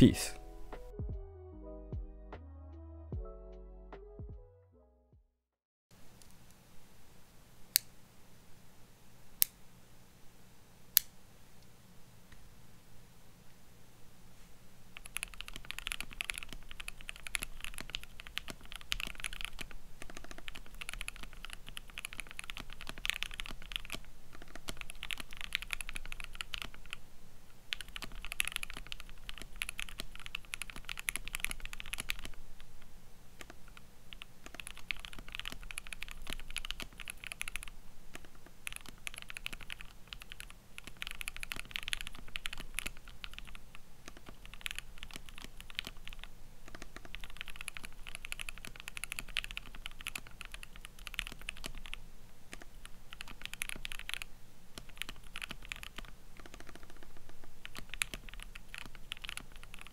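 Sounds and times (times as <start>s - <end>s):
fast typing on mechanical keyboard: 15.0s - 27.0s, 27.7s - 32.4s, 33.4s - 59.9s.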